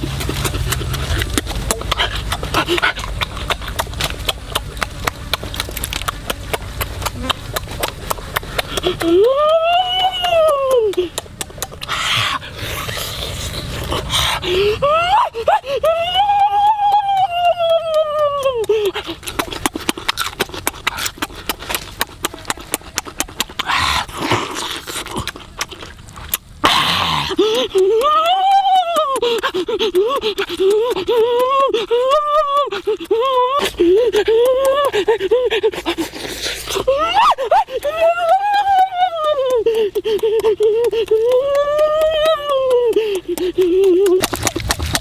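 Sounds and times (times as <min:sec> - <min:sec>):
chewing mouth sounds: 0:00.0 - 0:14.8, 0:16.8 - 0:45.0
noisy breath: 0:11.8 - 0:15.9, 0:32.7 - 0:36.9, 0:42.9 - 0:43.7.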